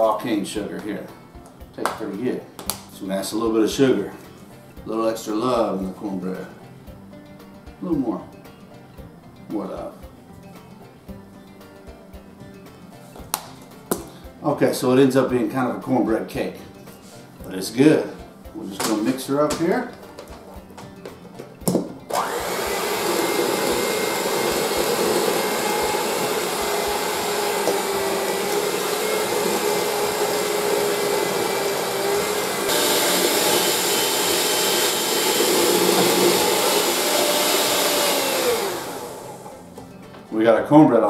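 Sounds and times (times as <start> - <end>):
electric hand mixer whirring: 22.1 - 39.7.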